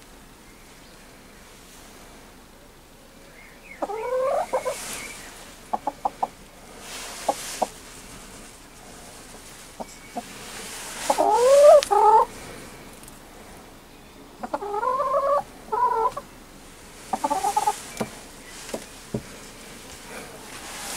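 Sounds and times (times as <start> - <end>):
hen calling: 3.7 - 8.5, 9.1 - 12.8, 14.4 - 18.7.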